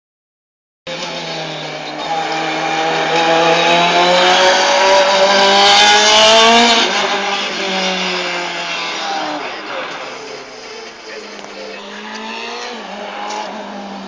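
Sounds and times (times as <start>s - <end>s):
race car engine accelerating past: 1.1s - 9.7s, 11.8s - 14.0s.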